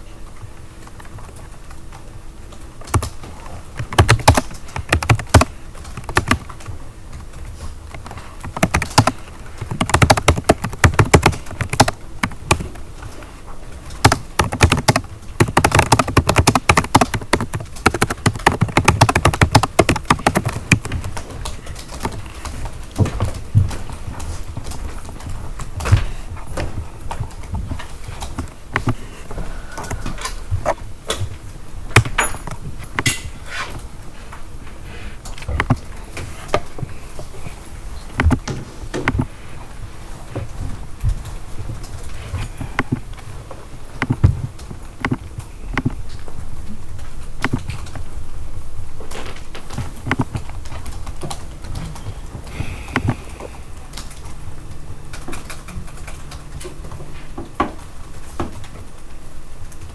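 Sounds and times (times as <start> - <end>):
low room noise rumble: 0.0 - 59.9
keys clicking: 2.8 - 13.2, 13.8 - 29.0.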